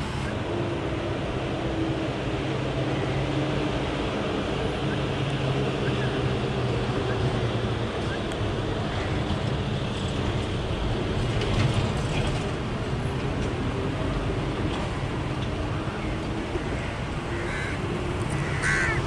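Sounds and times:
lorry diesel engines rumbling: 0:00.0 - 0:19.0.

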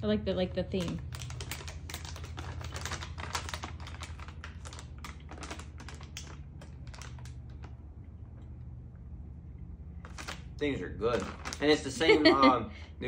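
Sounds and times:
low hum: 0:00.0 - 0:11.6
plastic bag crinkling: 0:00.6 - 0:08.0, 0:10.0 - 0:12.4.

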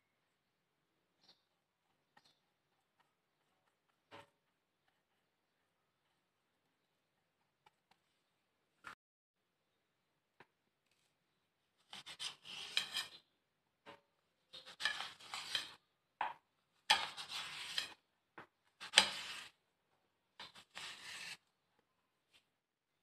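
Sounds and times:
knife scraping on ceramic plate: 0:11.9 - 0:13.3, 0:14.5 - 0:15.8, 0:16.9 - 0:18.0, 0:18.8 - 0:19.5, 0:20.4 - 0:21.4.

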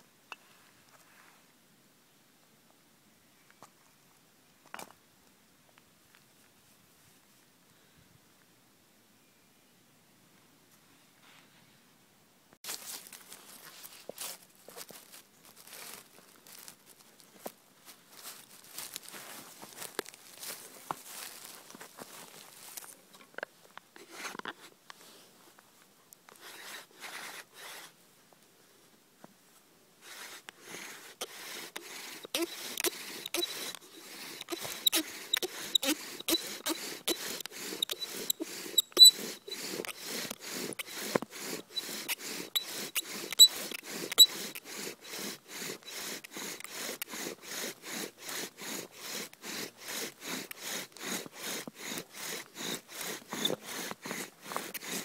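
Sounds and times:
handling sounds: 0:12.6 - 0:23.1
bow drill rasping: 0:26.3 - 0:28.0, 0:30.0 - 0:55.0
high squeaks: 0:31.2 - 0:55.0.

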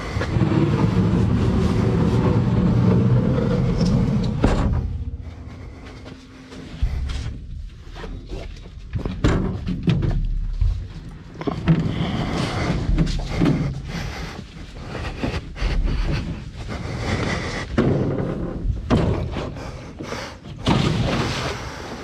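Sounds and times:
rustling and scraping: 0:00.0 - 0:20.3.

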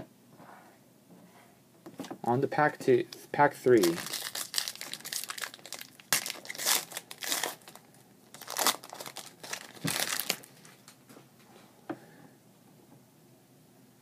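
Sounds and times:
foil wrapper tearing and crinkling: 0:03.8 - 0:10.6.

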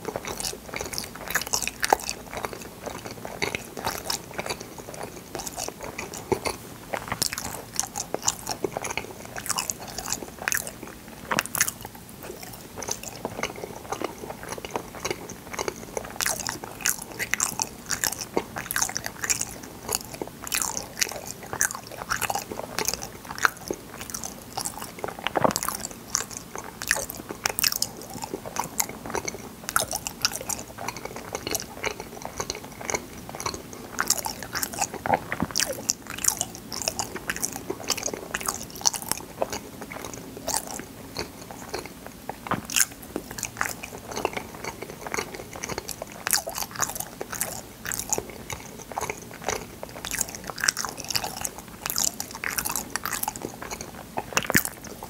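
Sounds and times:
biting and chewing jelly: 0:00.0 - 0:55.0.

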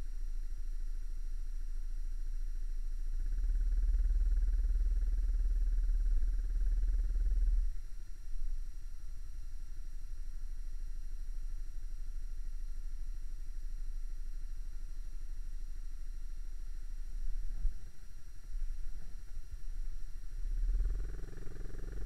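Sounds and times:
small motorcycle engine idling: 0:00.0 - 0:22.0
low rumble: 0:16.3 - 0:22.0.

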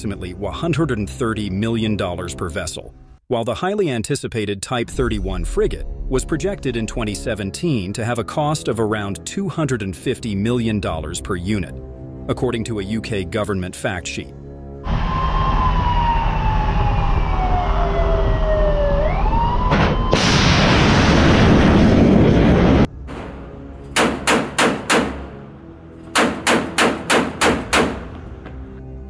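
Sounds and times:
missile launch roar: 0:14.9 - 0:23.5
deck gun firing shots: 0:24.0 - 0:25.2, 0:26.2 - 0:28.1.

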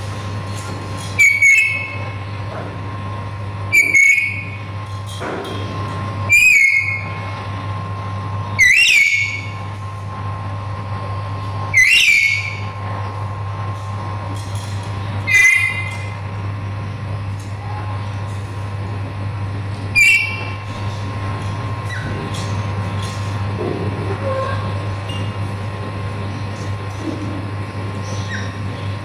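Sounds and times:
parrot whistled calls: 0:01.2 - 0:02.0, 0:03.7 - 0:04.6, 0:06.3 - 0:07.2, 0:08.6 - 0:09.6, 0:11.7 - 0:12.7, 0:15.2 - 0:16.1, 0:19.9 - 0:20.6
low hum: 0:12.4 - 0:29.0.

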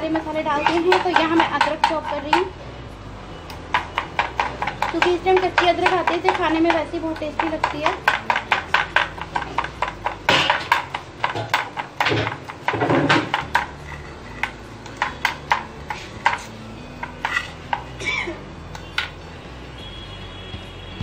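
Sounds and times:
knife chopping on cutting board: 0:00.6 - 0:02.5, 0:03.7 - 0:13.8.

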